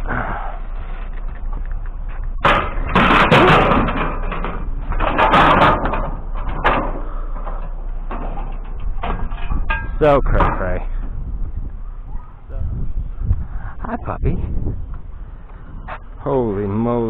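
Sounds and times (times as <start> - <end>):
junk clattering and banging: 0.0 - 13.0
loud rattling: 2.4 - 12.6.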